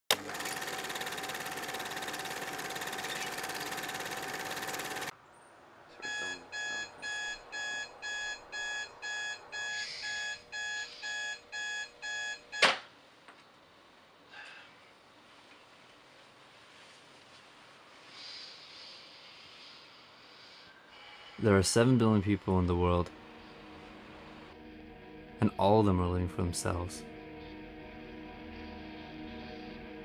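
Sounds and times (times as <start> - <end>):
digital alarm clock beeping: 6.1 - 12.7.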